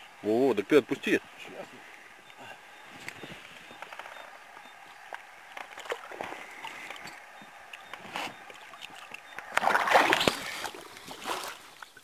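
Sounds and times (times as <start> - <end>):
water lapping: 0.0 - 12.0
water splashing at a boat: 3.9 - 12.0.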